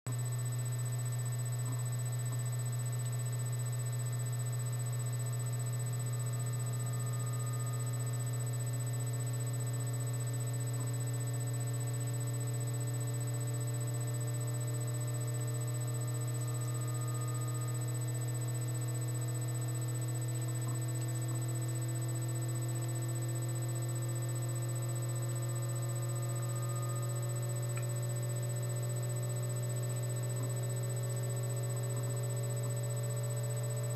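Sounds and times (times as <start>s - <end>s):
low electrical hum: 0.1s - 33.9s
thin high whine: 0.2s - 33.9s.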